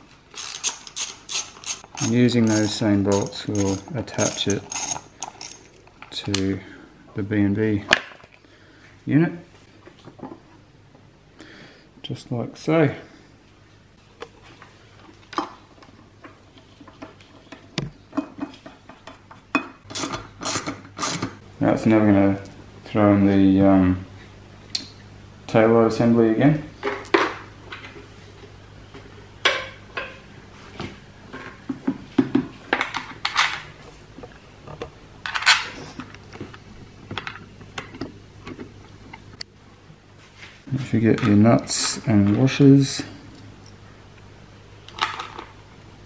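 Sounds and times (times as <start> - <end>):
clicks and clinks of bolts: 0.4 - 5.7.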